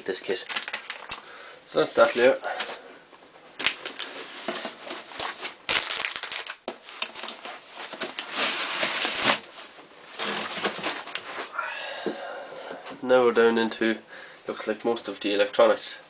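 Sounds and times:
plastic packaging crinkling: 0:00.3 - 0:01.4, 0:03.6 - 0:11.5.

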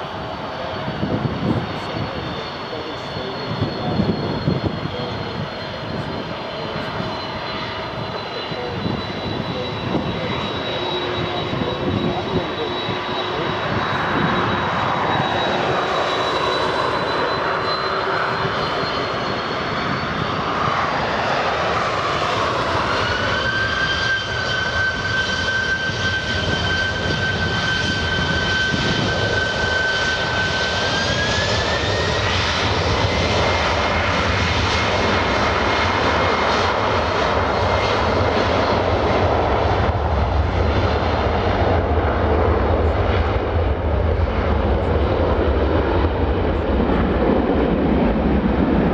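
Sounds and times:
jet engines whining: 0:00.0 - 0:48.9
low rumble of airliner rolling: 0:00.0 - 0:48.9.

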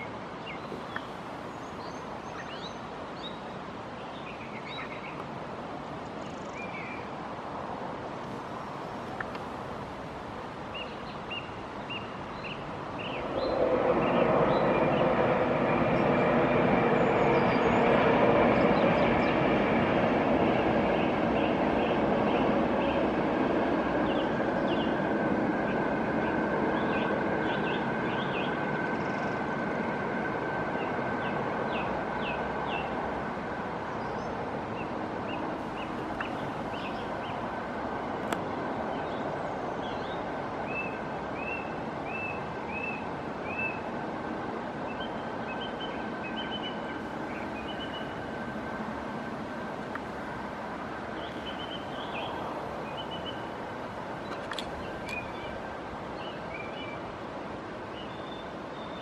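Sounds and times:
small birds chirping: 0:00.4 - 0:05.3, 0:35.3 - 0:37.5, 0:51.2 - 0:53.5, 0:54.2 - 0:55.6
steady rumbling noise: 0:07.1 - 0:56.2.

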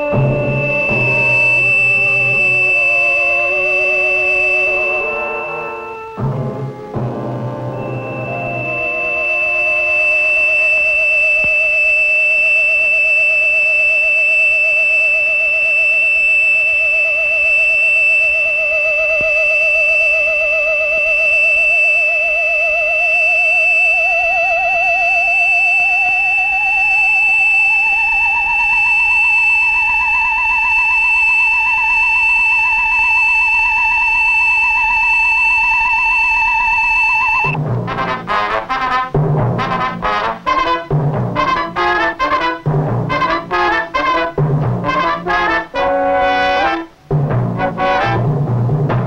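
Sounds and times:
eerie wavering tone music: 0:00.0 - 0:37.6
high-pitched whine: 0:00.0 - 0:49.0.

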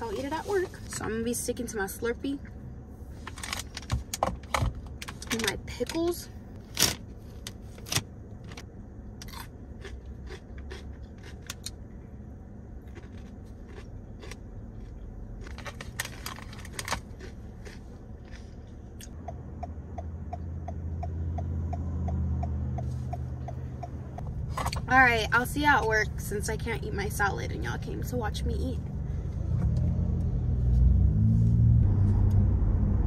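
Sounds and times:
low hum: 0:00.0 - 0:33.0
snack crunches: 0:09.2 - 0:11.8, 0:12.8 - 0:19.2
foil snack bag crinkling: 0:15.4 - 0:17.8.

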